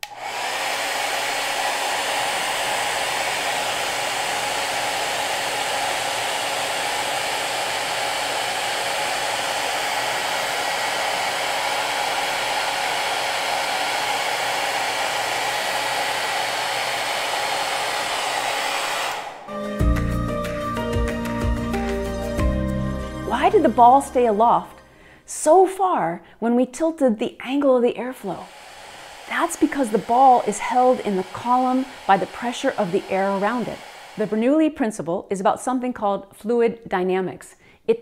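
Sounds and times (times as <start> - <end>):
hair dryer blowing: 0.0 - 22.2, 23.0 - 25.3, 28.0 - 34.9
music: 19.5 - 25.0.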